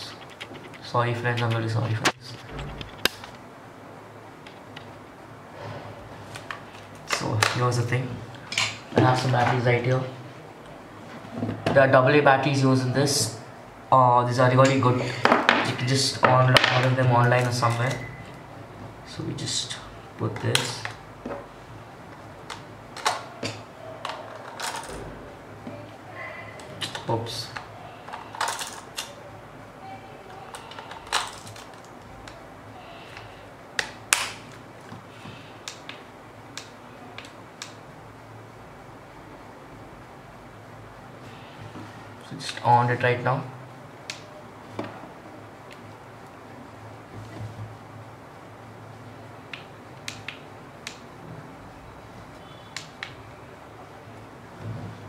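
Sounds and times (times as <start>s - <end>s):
faint high tone: 29.8s - 31.1s.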